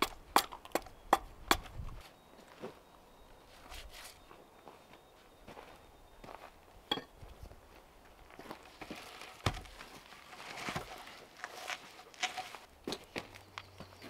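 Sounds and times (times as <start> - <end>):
footsteps on dry leaves: 7.6 - 14.0.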